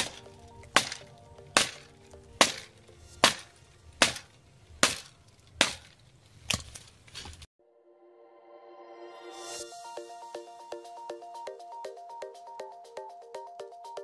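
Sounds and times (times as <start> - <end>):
quiet background music: 0.0 - 6.0
machete chopping branches: 0.0 - 7.5.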